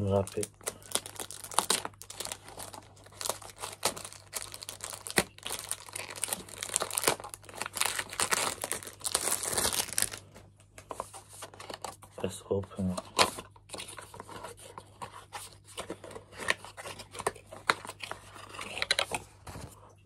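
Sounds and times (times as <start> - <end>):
cellophane wrap crinkling: 0.0 - 10.4.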